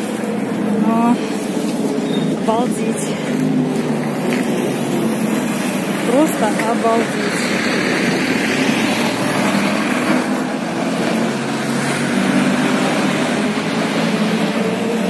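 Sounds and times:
road traffic passing: 0.0 - 15.0.

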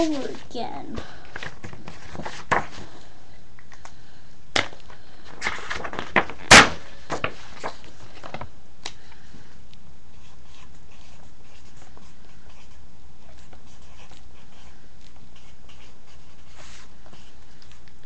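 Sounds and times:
pen writing on paper: 13.7 - 14.7, 15.4 - 16.5.

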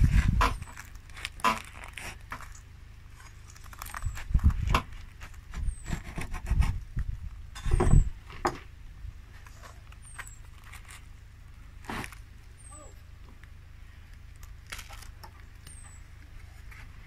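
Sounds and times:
bread bun crust crackling when squeezed: 3.2 - 4.6, 14.4 - 15.8.

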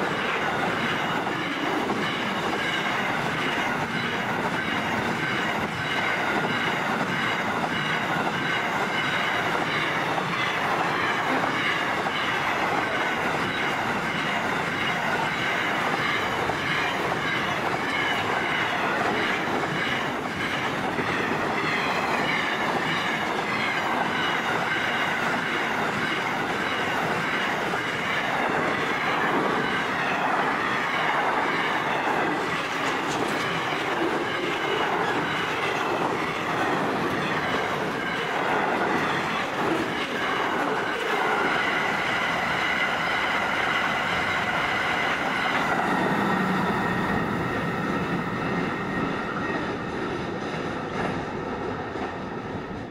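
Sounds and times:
train wheels rumbling on rails: 0.0 - 52.9.

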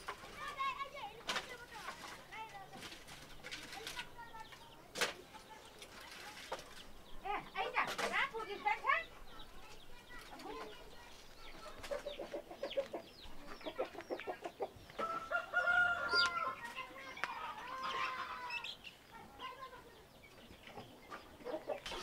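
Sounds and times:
chickens clucking: 0.0 - 22.0
rooster crowing: 15.0 - 16.6.

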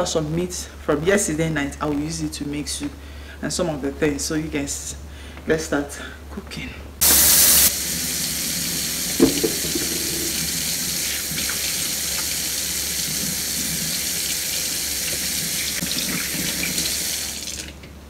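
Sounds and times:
faucet running into sink: 7.0 - 17.8
sharp knock: 9.2 - 10.4.

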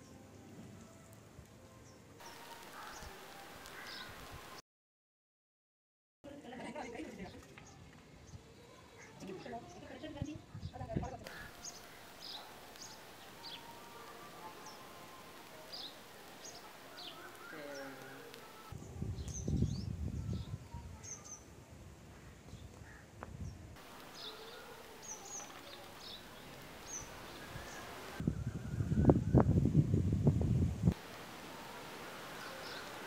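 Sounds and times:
small birds chirping: 7.3 - 21.5, 22.5 - 28.2, 30.9 - 33.0
wind rumble on microphone: 18.7 - 23.8, 27.4 - 31.0.

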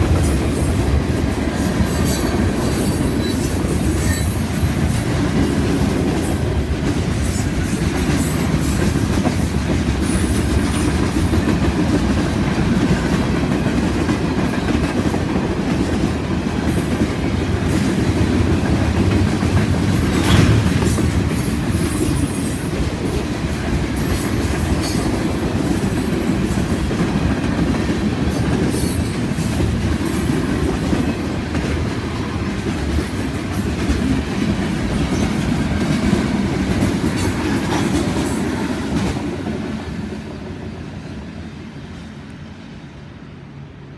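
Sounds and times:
freight train wheels clacking: 0.0 - 40.7
train wheel squeals: 0.2 - 1.0, 1.6 - 4.8, 6.2 - 10.9, 19.9 - 22.8, 24.0 - 26.7, 28.3 - 30.3.

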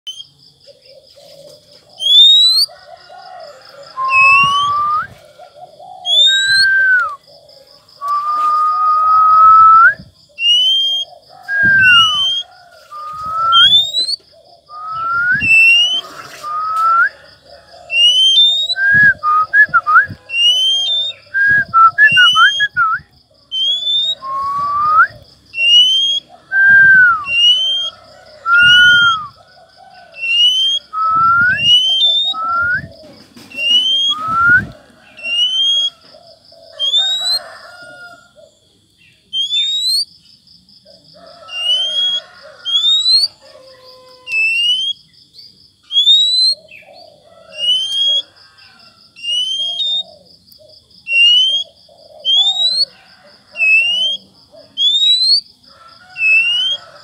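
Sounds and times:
bird whistling song: 0.0 - 0.3, 1.9 - 2.7, 3.7 - 7.3, 8.0 - 17.2, 17.8 - 29.4, 30.1 - 36.0, 36.7 - 37.8, 39.3 - 40.1, 41.5 - 43.4, 44.2 - 45.0, 45.8 - 46.9, 47.5 - 48.3, 49.2 - 50.3, 51.0 - 53.0, 53.6 - 55.5, 56.2 - 57.0
doves cooing: 0.6 - 40.0, 40.8 - 45.0, 45.9 - 57.0.

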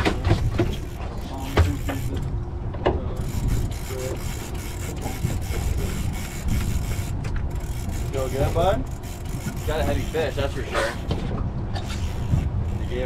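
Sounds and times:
steady low rumble: 0.0 - 13.0
fishing reel gears grinding and clicking: 0.7 - 2.3, 3.2 - 11.2, 11.8 - 13.0.

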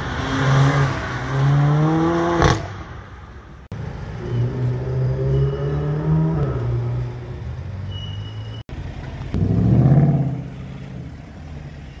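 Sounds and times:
car engine revving pulling away: 4.2 - 7.3.

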